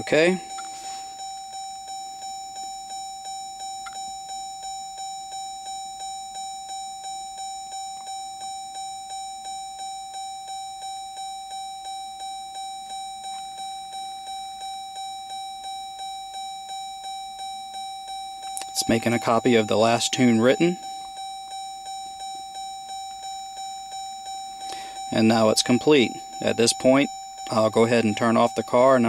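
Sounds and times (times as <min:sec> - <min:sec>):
car door warning chime: 0:00.0 - 0:29.0.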